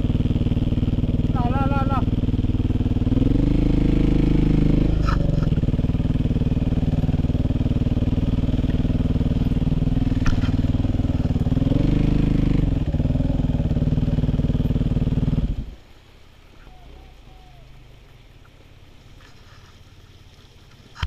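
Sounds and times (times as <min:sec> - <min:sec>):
dirt bike engine at low revs: 0:00.0 - 0:21.0.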